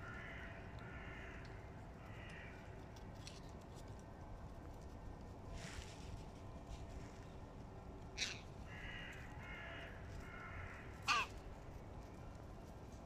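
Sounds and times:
crows cawing: 0.0s - 2.7s, 8.2s - 11.5s.

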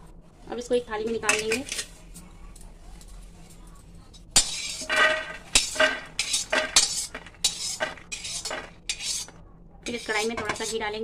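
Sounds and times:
metal skimmer scraping metal pan: 4.4s - 9.3s.

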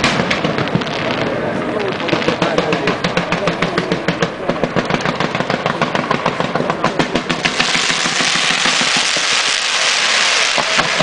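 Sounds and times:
firework reports: 0.0s - 11.0s
spark fountains hissing: 7.4s - 11.0s.

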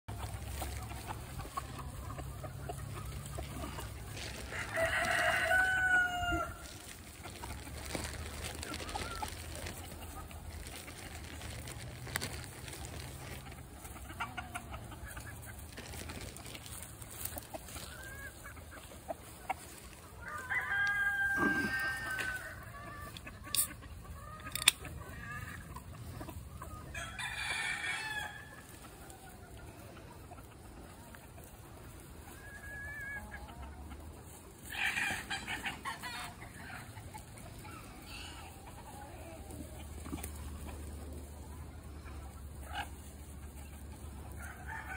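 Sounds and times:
chickens clucking: 0.1s - 44.9s
rooster crowing: 4.5s - 6.7s, 20.2s - 22.6s.

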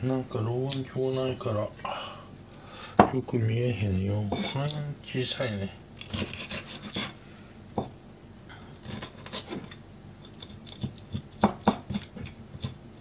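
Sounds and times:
knife scraping on cutting board: 6.0s - 7.2s, 8.8s - 9.8s.

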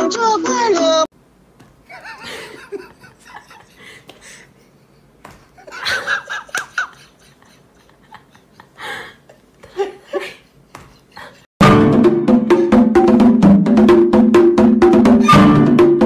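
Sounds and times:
person laughing quietly: 1.8s - 11.5s.

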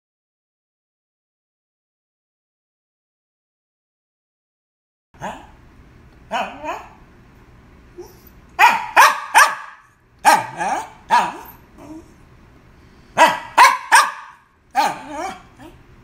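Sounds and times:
small dog barking: 5.2s - 5.6s, 6.3s - 7.0s, 8.0s - 12.0s, 13.2s - 15.8s.

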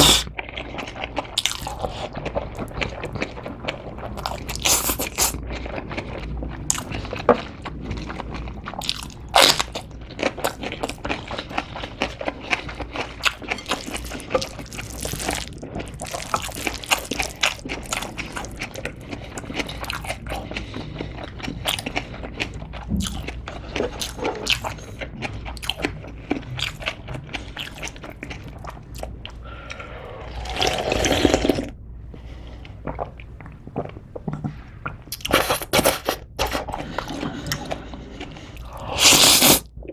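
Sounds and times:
noodle slurp: 38.5s - 39.7s.

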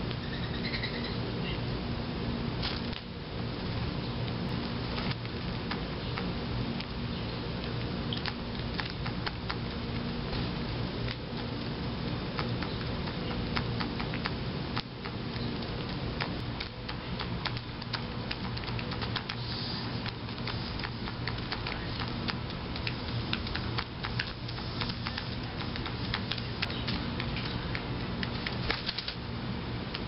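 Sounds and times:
steady low hum: 0.0s - 30.0s
beaks tapping seed and plate: 11.1s - 28.6s.

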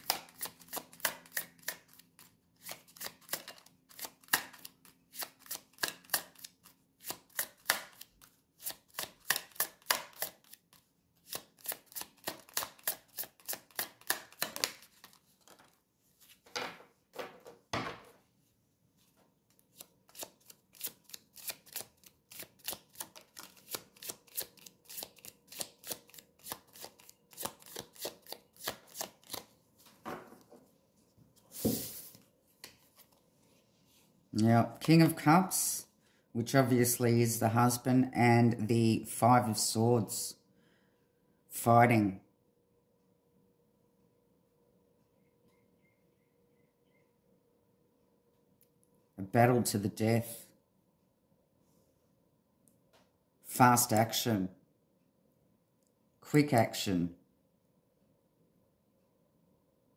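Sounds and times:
cards being shuffled: 0.0s - 16.5s, 19.5s - 29.5s.

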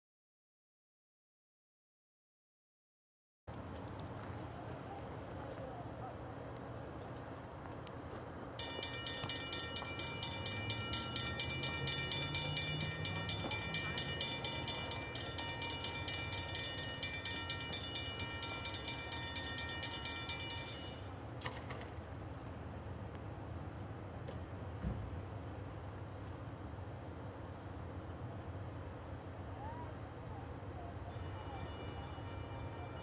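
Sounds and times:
railroad crossing bell ringing: 8.6s - 21.3s, 30.6s - 33.0s.

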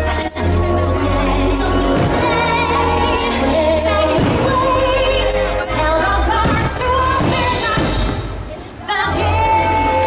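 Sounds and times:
song with female singing: 0.0s - 10.0s
fireworks bursting: 1.5s - 8.8s.

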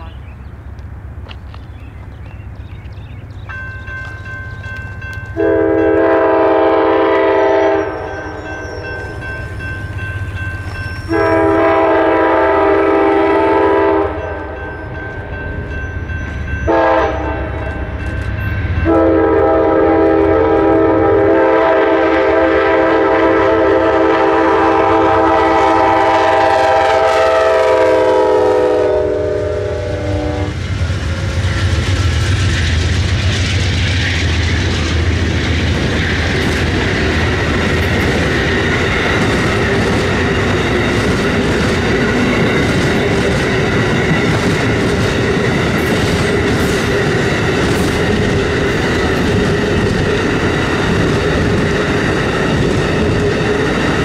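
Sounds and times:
locomotive air horn blasts: 5.4s - 8.3s, 11.1s - 14.6s, 16.7s - 17.7s, 18.8s - 30.6s
train wheels clacking on rail joints: 14.2s - 20.7s, 30.6s - 54.0s.

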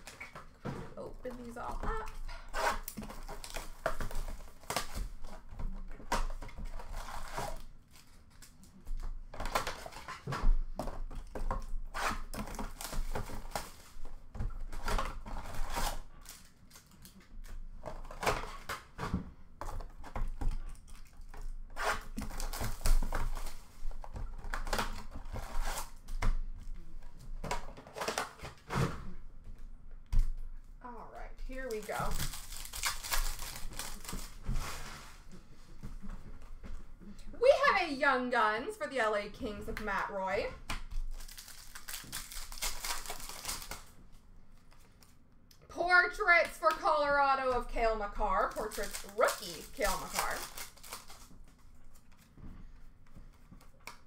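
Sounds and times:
card packs rustling and tapping: 31.5s - 34.9s, 40.9s - 45.2s, 48.4s - 54.0s.

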